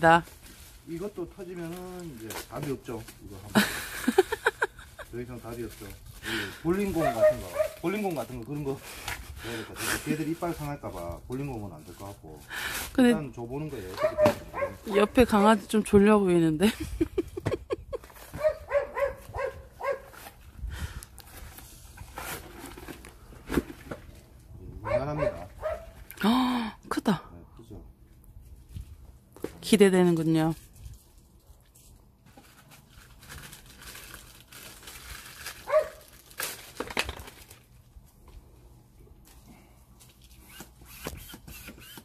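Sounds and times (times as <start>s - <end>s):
plastic packaging crinkling: 0.0s - 3.5s, 4.5s - 9.3s, 32.4s - 37.9s
dog whining and yelping: 18.3s - 20.1s.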